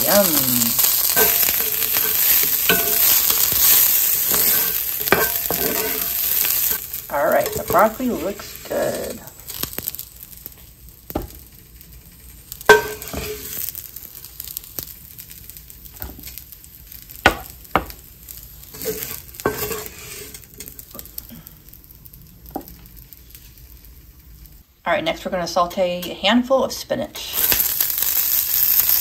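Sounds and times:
vegetables sizzling in skillet: 0:00.0 - 0:29.0
wooden spoon scraping pan: 0:00.1 - 0:09.3, 0:12.7 - 0:13.6, 0:18.7 - 0:20.8.

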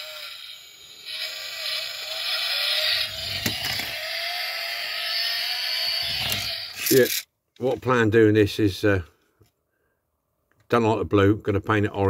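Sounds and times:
toy car mechanical whir: 0:00.0 - 0:07.3.

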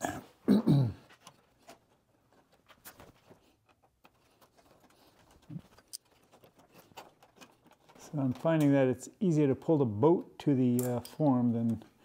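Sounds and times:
wire clicking against plywood: 0:01.1 - 0:08.9.

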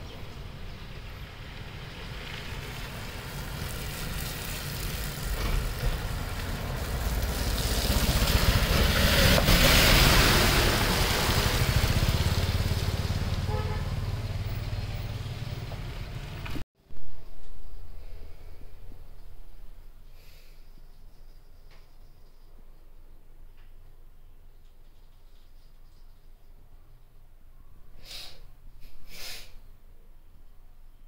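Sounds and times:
vehicle passing with rumble and hiss: 0:00.0 - 0:16.6.

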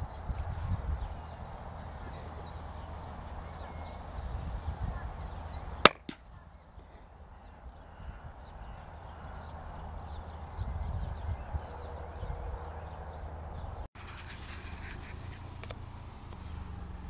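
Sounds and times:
suppressed rifle shot crack: 0:05.8 - 0:06.2.

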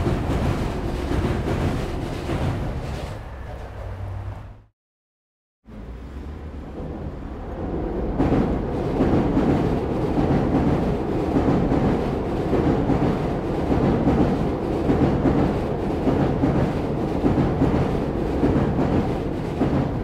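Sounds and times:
electric train rumbling on viaduct: 0:00.0 - 0:04.7, 0:05.7 - 0:20.0.

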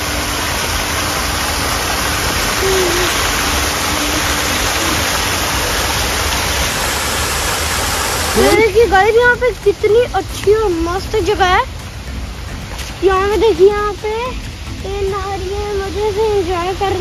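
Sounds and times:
running water rushing: 0:00.0 - 0:17.0.

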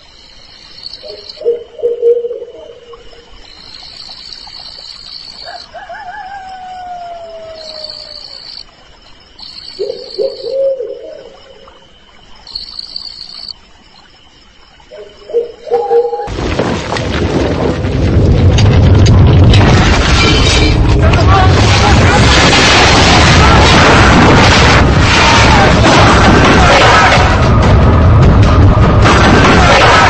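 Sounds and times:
crickets trilling: 0:00.0 - 0:30.0
low animal calls: 0:05.4 - 0:08.6.

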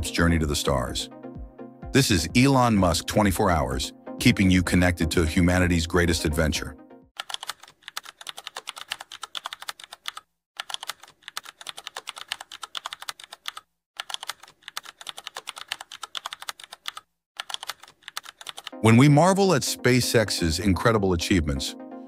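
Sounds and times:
fast keyboard typing: 0:07.2 - 0:18.8.

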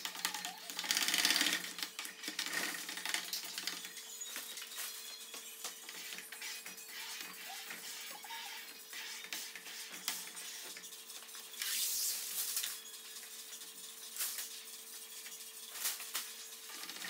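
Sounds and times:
plastic sheet rustling: 0:11.6 - 0:12.8, 0:15.6 - 0:17.0.

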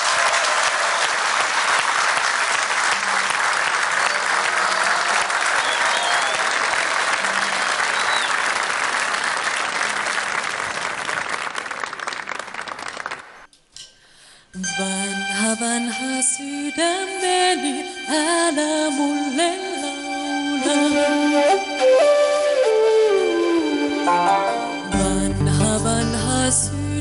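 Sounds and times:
audience applauding: 0:00.0 - 0:13.5.

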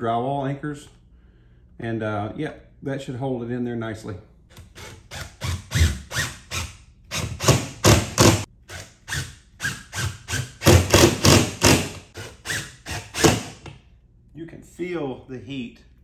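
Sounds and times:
impact driver knocking: 0:07.2 - 0:08.4, 0:10.4 - 0:12.0.

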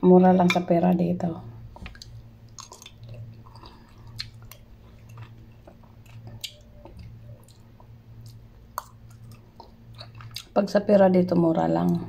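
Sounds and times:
low steady hum: 0:00.0 - 0:12.0
person chewing noodles: 0:01.7 - 0:10.6
wet mouth clicks and smacks: 0:01.8 - 0:10.5.

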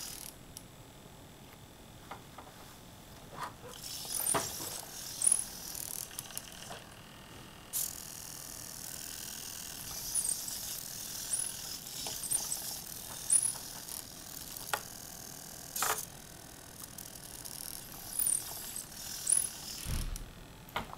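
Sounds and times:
servomotors whirring: 0:03.7 - 0:07.0, 0:07.7 - 0:20.3.

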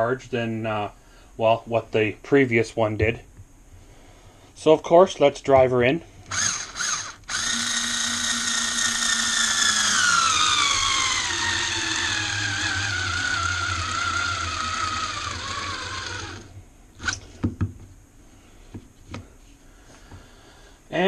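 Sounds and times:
cordless screwdriver motor whining: 0:06.3 - 0:17.3.

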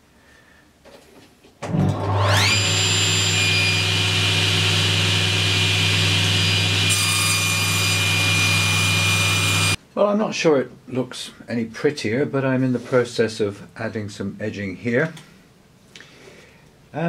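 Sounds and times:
saw cutting wood panel: 0:01.7 - 0:09.8
table saw whining: 0:01.7 - 0:09.8.

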